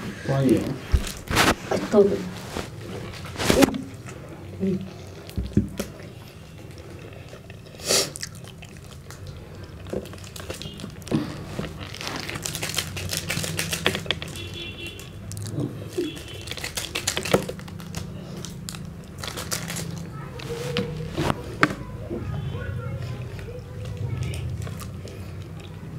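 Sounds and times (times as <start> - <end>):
plastic wrapper crinkling and tearing: 0.4 - 3.8, 8.1 - 21.4, 23.8 - 25.7.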